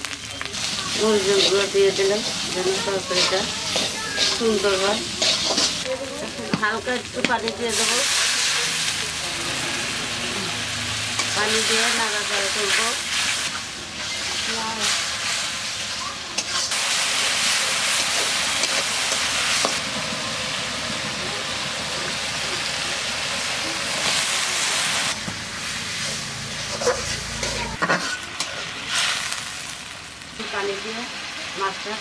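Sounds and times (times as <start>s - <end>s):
sauce sizzling in a wok: 0.0s - 32.0s
spatula scraping and knocking pan: 1.0s - 5.9s.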